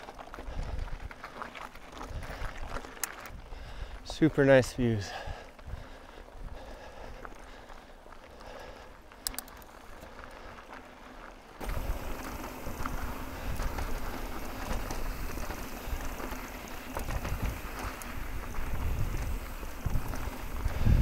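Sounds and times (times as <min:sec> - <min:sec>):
bike tyres rumbling on trail: 0:00.0 - 0:21.0
wind buffeting microphone: 0:11.6 - 0:21.0.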